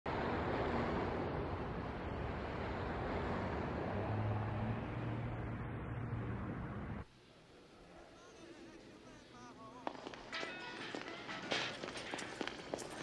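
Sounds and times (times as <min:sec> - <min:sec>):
steady outdoor rumble: 0:00.1 - 0:07.6.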